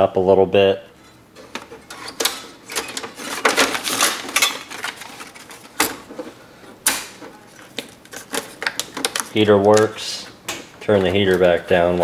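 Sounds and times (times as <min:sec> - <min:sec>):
tape dispenser parts clicking: 0:01.5 - 0:06.2, 0:06.8 - 0:10.0.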